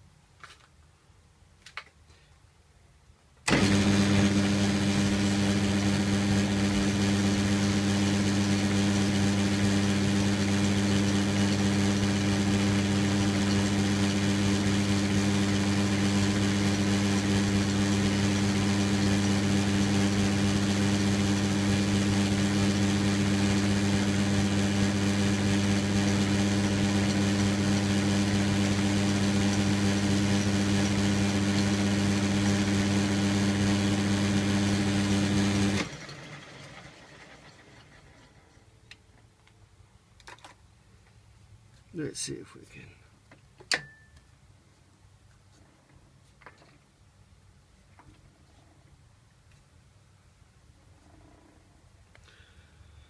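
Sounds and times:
metal lathe motor hum: 3.5 - 37.0.

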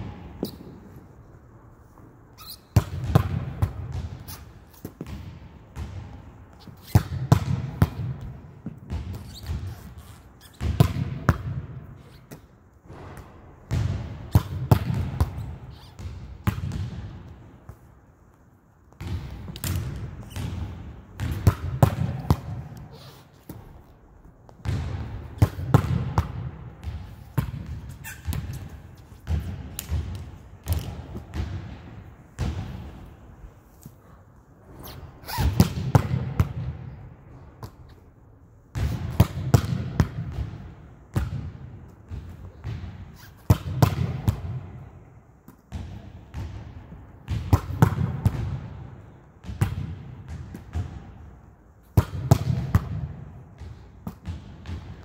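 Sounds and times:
volleyball hitting wall: 12.3 - 17.1, 19.0 - 22.8, 24.5 - 33.1, 38.7 - 44.9, 45.7 - 51.2, 52.0 - 55.0.

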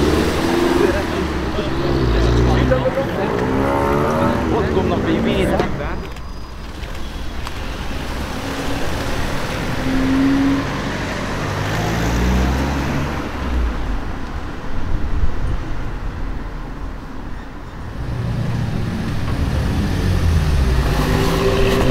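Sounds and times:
car engines humming: 0.0 - 21.9.

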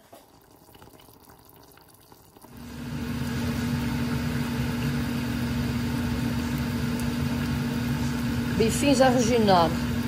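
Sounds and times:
machine hum: 2.5 - 10.0.

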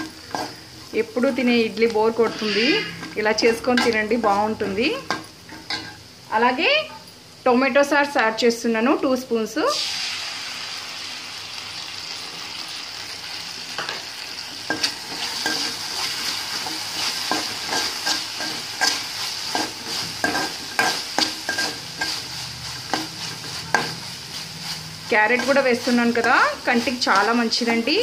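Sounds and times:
vegetables sizzling in hot oil: 0.0 - 28.0
spatula scraping metal pan: 2.1 - 4.0, 14.7 - 27.2.

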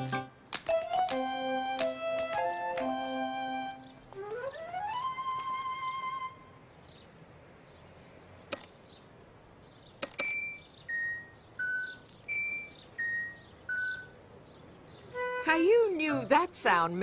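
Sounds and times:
pedestrian crossing chime: 10.2 - 14.3.

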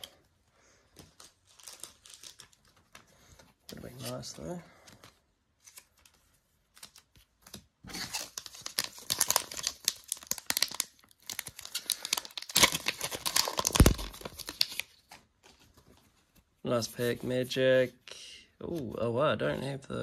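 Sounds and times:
foil wrapper crinkling: 7.9 - 15.0.

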